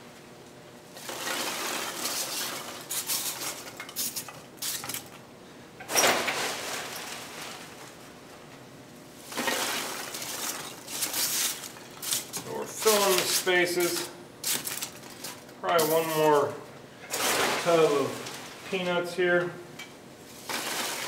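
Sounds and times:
packing peanuts pouring into box: 1.0 - 3.5, 20.4 - 21.0.

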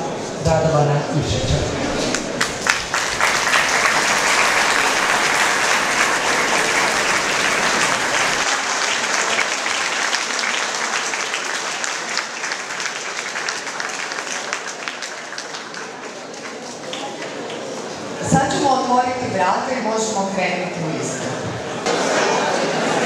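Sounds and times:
audience applauding: 2.1 - 18.2.

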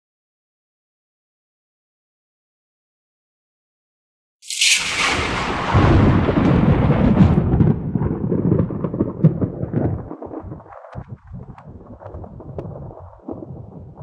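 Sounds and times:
thunder crack and rumble: 4.5 - 14.0.

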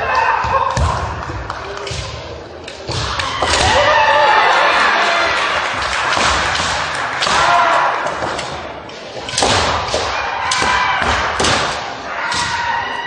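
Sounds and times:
people shouting: 2.9 - 8.6, 9.9 - 13.0
bamboo swords striking: 6.0 - 12.7.

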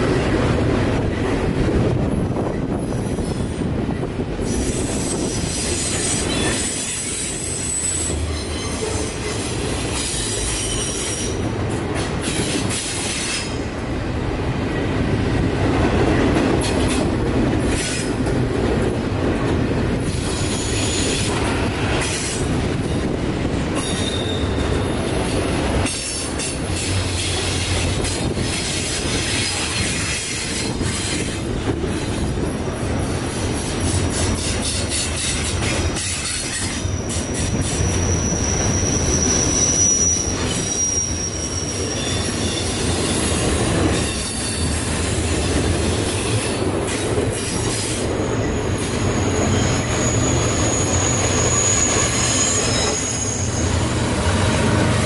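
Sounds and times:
train wheels rumbling on rail: 0.0 - 55.0
high-pitched wheel squeal: 4.5 - 9.4, 23.8 - 25.1, 34.4 - 43.4, 48.4 - 53.9.

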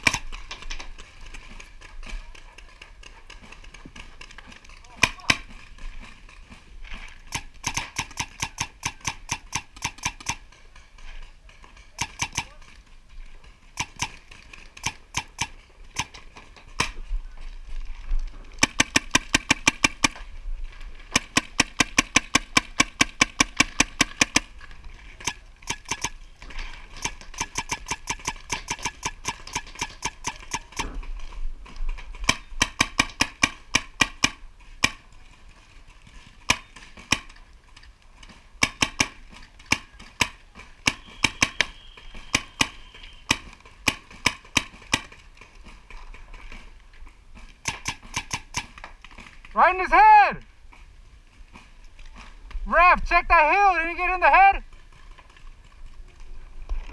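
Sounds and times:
paintball markers firing: 0.0 - 6.6, 7.2 - 11.0, 11.6 - 12.8, 13.7 - 17.1, 18.6 - 20.3, 21.0 - 31.2, 32.1 - 35.1, 36.2 - 37.5, 38.3 - 46.7, 47.4 - 49.6.

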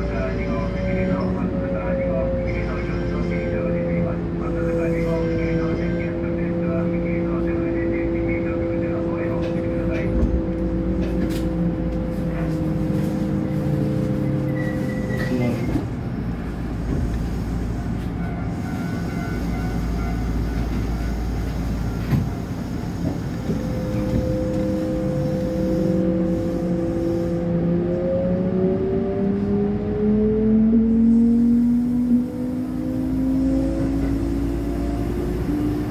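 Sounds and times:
wheels rumbling on rail: 0.0 - 35.9
train motor whine: 16.8 - 27.5.

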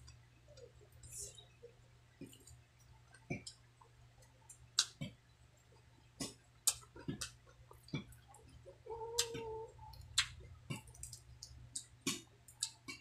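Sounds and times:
faint low hum: 0.0 - 13.0
mouth clicks and smacks chewing: 2.2 - 5.2, 6.2 - 13.0.

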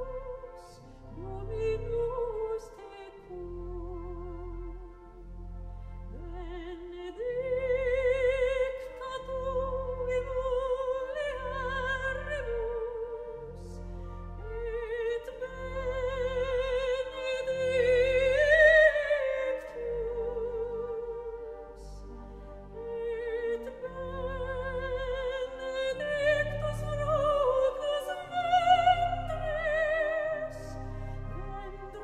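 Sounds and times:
operatic voice singing: 6.1 - 13.8, 14.5 - 22.0, 22.8 - 32.0.

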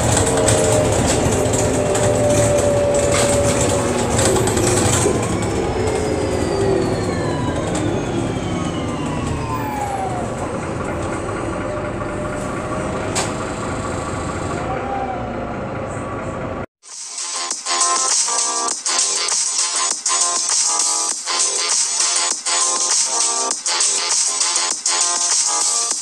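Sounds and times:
bus engine and running noise: 0.0 - 16.7
drivetrain whine: 0.0 - 16.7.

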